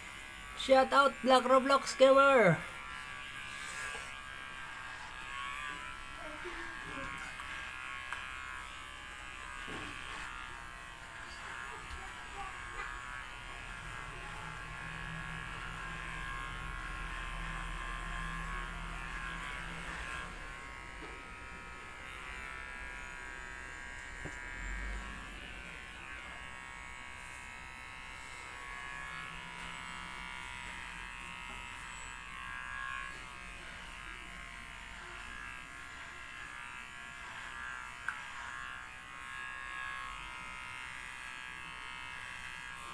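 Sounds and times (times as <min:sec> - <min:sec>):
electric hair clippers buzzing: 0:00.0 - 0:42.9.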